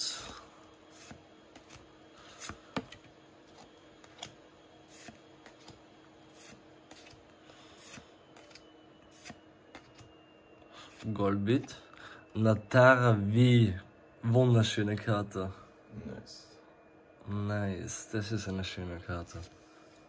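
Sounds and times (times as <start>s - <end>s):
faint steady hum: 0.0s - 20.0s
cards snapping and sliding: 0.9s - 7.2s, 7.8s - 10.1s.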